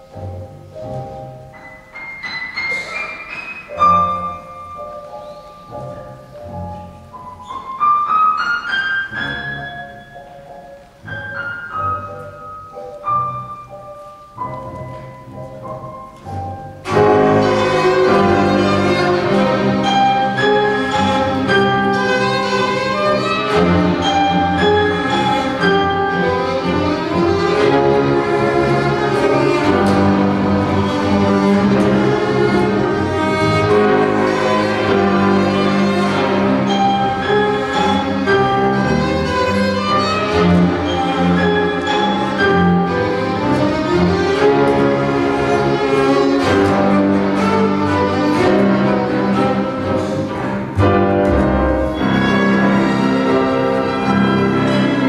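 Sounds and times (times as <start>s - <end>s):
chamber ensemble playing a tango: 0.0s - 55.0s.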